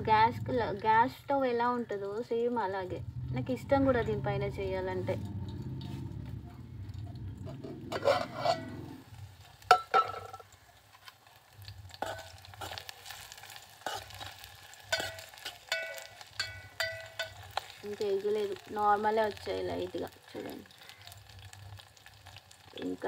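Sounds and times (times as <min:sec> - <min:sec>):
faint frying sizzle: 0:00.0 - 0:23.0
metal pot lid clattering: 0:07.4 - 0:09.0, 0:09.6 - 0:10.5, 0:11.9 - 0:12.8, 0:13.9 - 0:17.6
spoon tapping metal pot: 0:09.7 - 0:10.6, 0:14.9 - 0:17.7.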